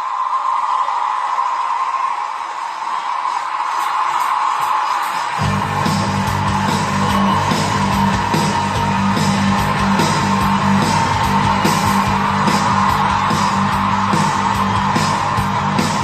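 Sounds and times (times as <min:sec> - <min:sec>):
music with guitar and beat: 0:05.4 - 0:16.0.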